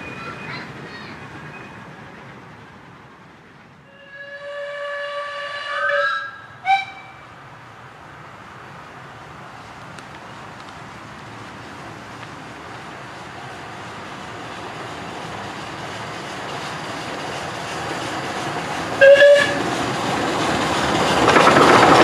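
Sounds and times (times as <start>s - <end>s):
train running noise: 0.0s - 22.0s
steam locomotive whistle: 3.9s - 7.3s, 19.0s - 19.6s.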